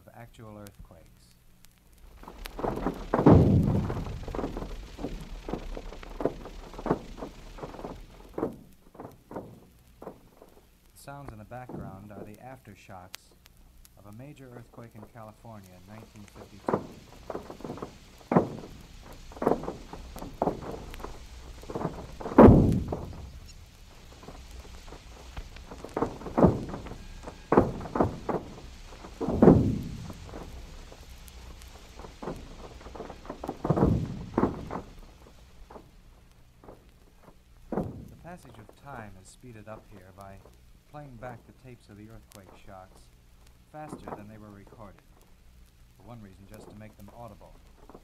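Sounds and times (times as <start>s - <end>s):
short irregular thuds: 0.6s - 48.0s
heavy thump with rumble: 1.9s - 12.4s, 14.0s - 48.0s.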